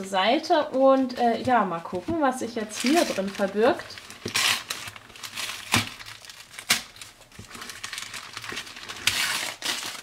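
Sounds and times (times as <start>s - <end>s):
newspaper rustling and tearing: 2.6s - 10.0s.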